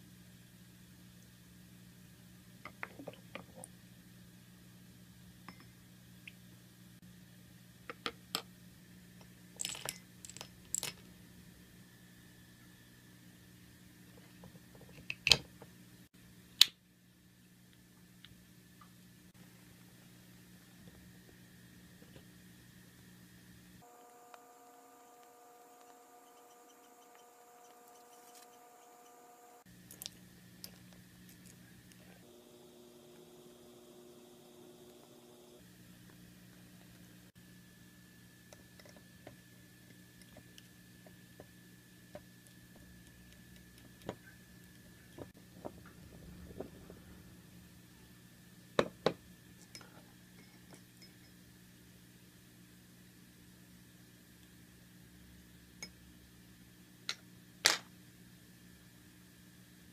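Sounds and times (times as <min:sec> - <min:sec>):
faint steady hum: 0:00.0 - 0:59.9
clam shells clinking on ceramic: 0:09.6 - 0:11.0.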